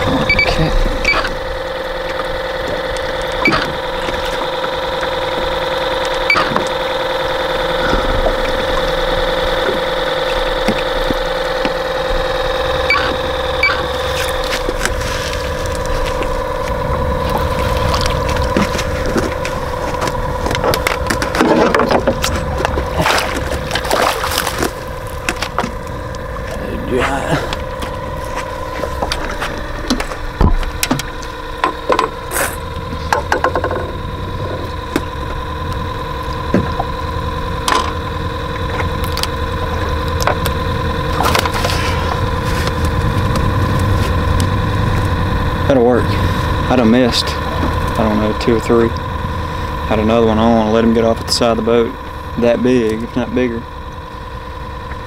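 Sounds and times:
boat motor humming: 0.0 - 55.0.

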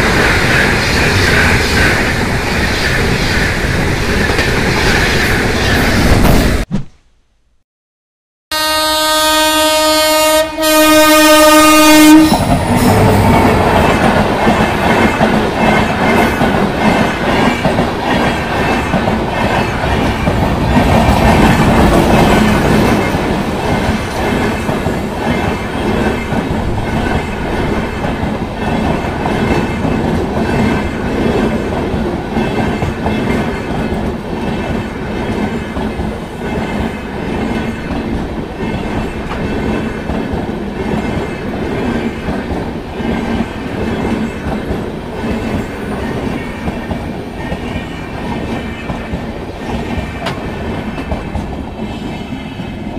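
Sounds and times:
train passing with wheel clatter: 0.0 - 6.7, 8.6 - 52.9
train horn: 8.5 - 13.6.

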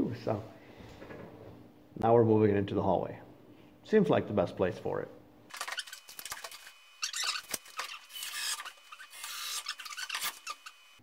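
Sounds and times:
handling rubbing and scraping: 5.5 - 11.0.

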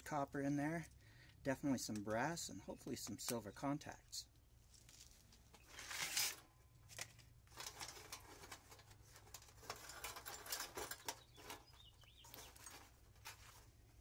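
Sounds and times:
wires rustling and scraping: 4.3 - 14.0.

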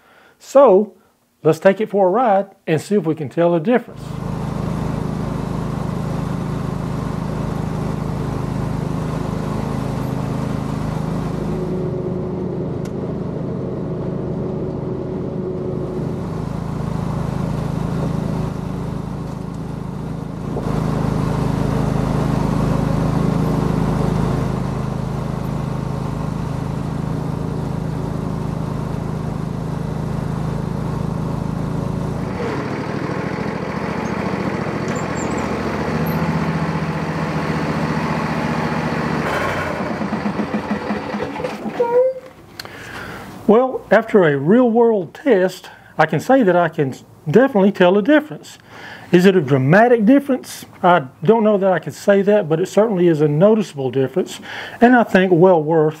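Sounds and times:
riding mower engine running: 3.9 - 43.5.

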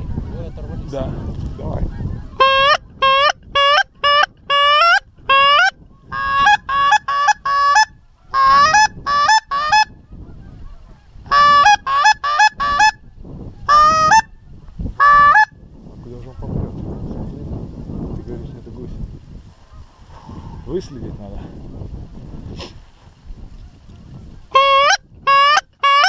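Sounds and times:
goose honking: 1.9 - 13.0, 24.5 - 26.0.

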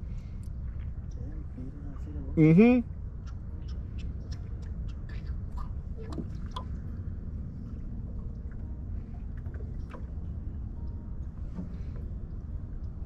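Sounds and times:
steady low rumble: 0.0 - 13.0
water pops and drips on pond: 4.0 - 6.7.

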